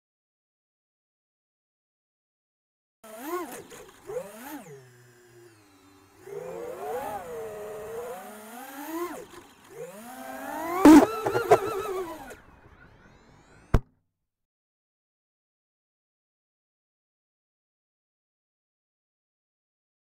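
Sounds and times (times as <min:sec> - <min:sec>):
drone motors whining: 0:03.1 - 0:13.8.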